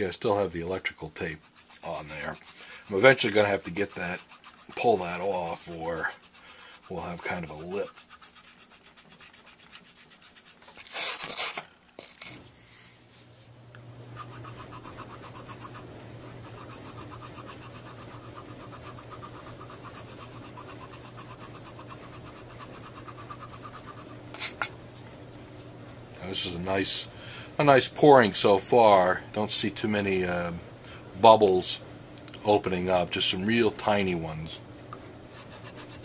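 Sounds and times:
faint low hum: 0.0 - 36.0
hand file scraping: 1.2 - 11.6, 14.1 - 24.7, 35.3 - 36.0.

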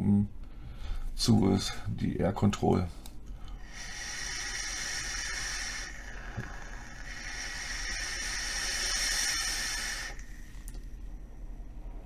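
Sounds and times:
air hissing through atomizer: 3.6 - 10.9
coil sizzling: 3.6 - 11.1.

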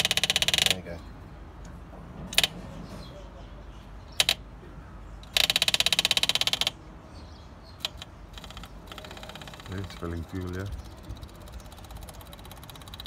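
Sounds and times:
fuel pump clicking rapidly: 0.0 - 0.8, 5.2 - 6.8, 7.8 - 13.0.

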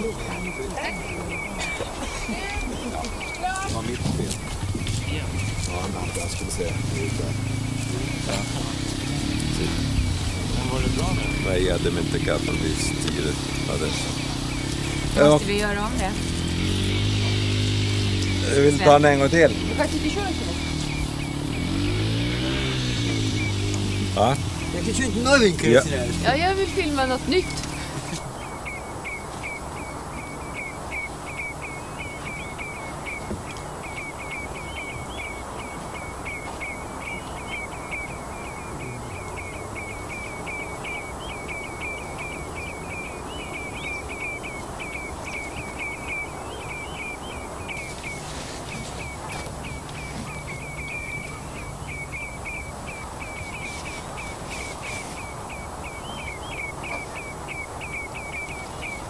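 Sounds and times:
background noise: 0.0 - 59.0.

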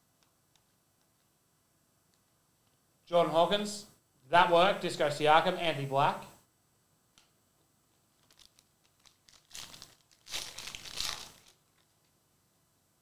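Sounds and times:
foil wrapper crinkling and tearing: 8.1 - 12.1.

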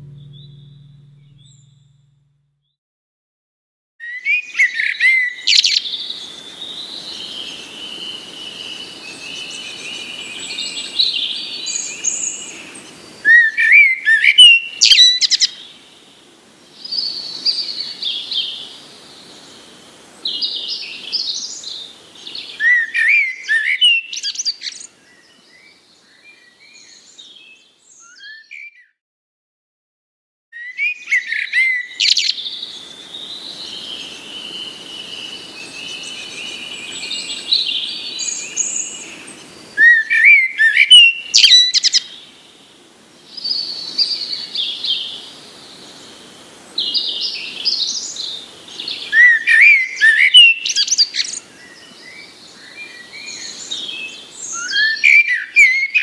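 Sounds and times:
songbirds singing and chirping: 4.0 - 15.9, 30.6 - 56.0
faint hiss: 32.0 - 55.6.

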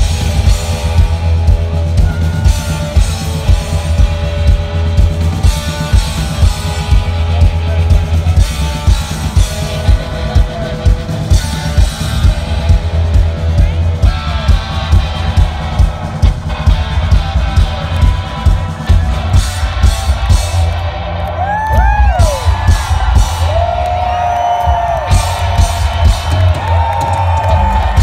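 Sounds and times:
live rock band playing: 0.0 - 28.0
crowd whooping: 17.5 - 28.0.

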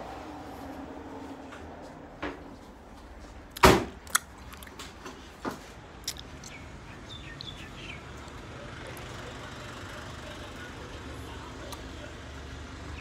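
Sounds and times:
footsteps: 0.6 - 3.5.

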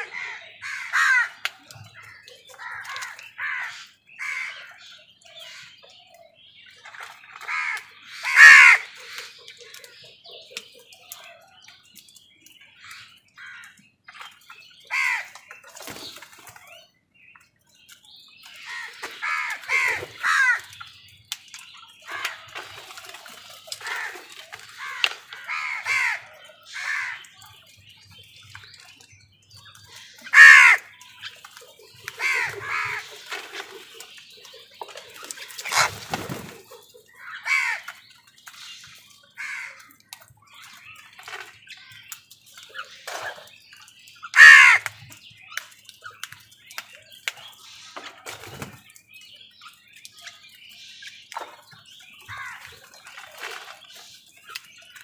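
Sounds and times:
crows cawing: 0.0 - 1.4, 2.6 - 4.7, 7.4 - 9.2, 14.9 - 15.4, 18.7 - 20.8, 23.8 - 27.2, 30.3 - 30.9, 32.2 - 33.1, 35.6 - 35.9, 37.2 - 38.0, 39.4 - 39.9, 44.4 - 45.0.

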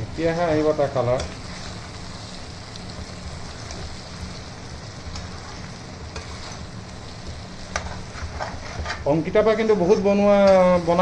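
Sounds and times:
food sizzling in a pan: 0.0 - 11.0
metal spatula scraping pan: 7.7 - 9.1.

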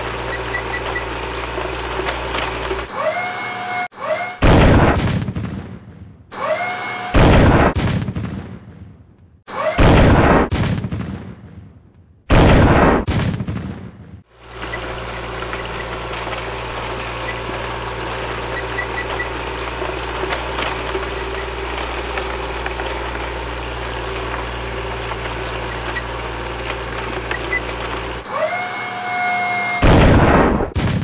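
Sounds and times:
tank engine rumble: 0.0 - 5.7, 13.9 - 31.0
tank cannon blast: 4.3 - 6.3, 7.1 - 14.3, 29.7 - 31.0.

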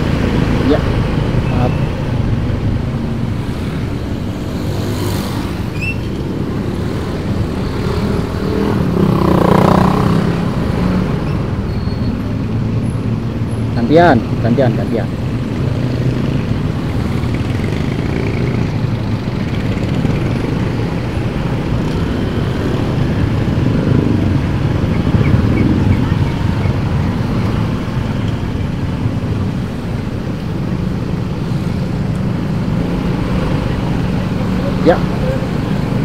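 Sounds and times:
road rumble: 0.0 - 36.0.

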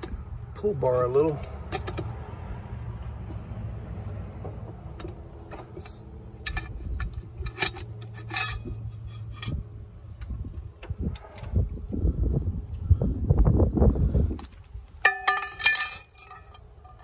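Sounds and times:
metallic clinks and knocks: 15.0 - 17.0.

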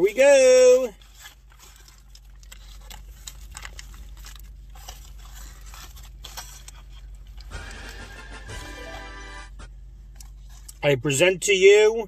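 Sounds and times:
foil wrapper crinkling: 0.1 - 8.2.

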